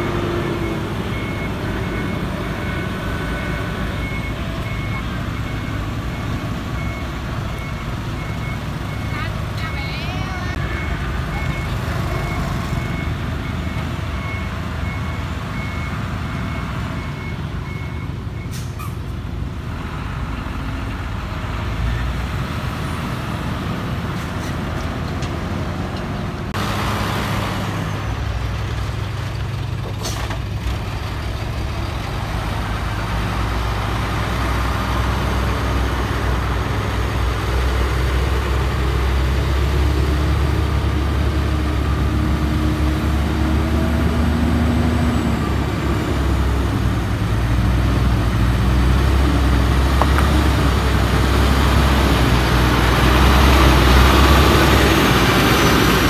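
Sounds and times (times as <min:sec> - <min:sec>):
diesel truck engines rumbling: 0:00.0 - 0:56.0
reversing beeper beeping: 0:00.3 - 0:18.7.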